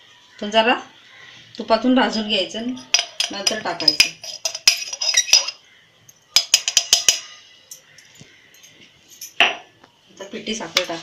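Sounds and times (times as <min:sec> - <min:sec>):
metal kitchen utensils clinking: 0:02.8 - 0:09.7.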